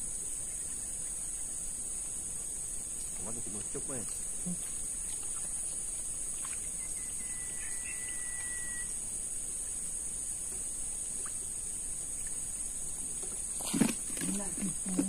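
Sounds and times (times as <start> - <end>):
high-pitched insect drone: 0.0 - 15.0
faint bird chirps: 3.0 - 9.8
bird long whistle: 6.6 - 9.0.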